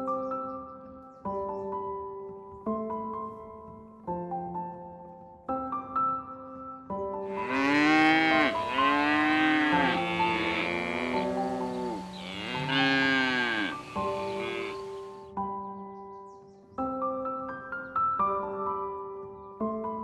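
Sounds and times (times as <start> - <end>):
piano music: 0.0 - 15.8
cows mooing: 7.3 - 15.2.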